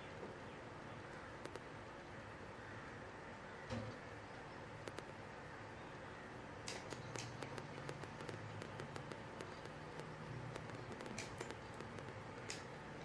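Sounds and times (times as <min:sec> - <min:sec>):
faint low hum: 0:00.0 - 0:13.0
computer mouse clicking: 0:01.4 - 0:01.6, 0:04.8 - 0:05.1, 0:06.7 - 0:12.7.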